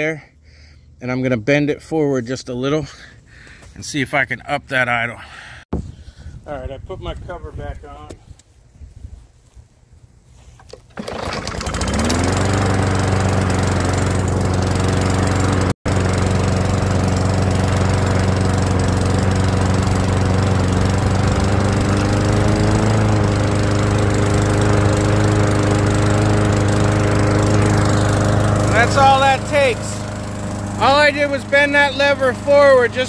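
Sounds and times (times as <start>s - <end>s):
lawn mower engine idling: 10.6s - 33.0s.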